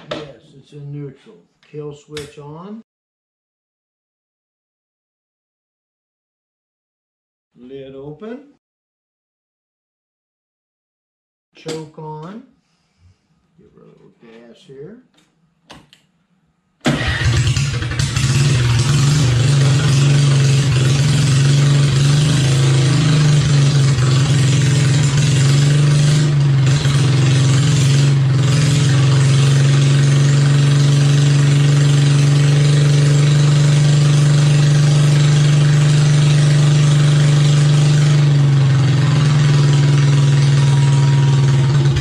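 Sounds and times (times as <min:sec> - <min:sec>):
small gasoline engine running: 0:16.9 - 0:42.0.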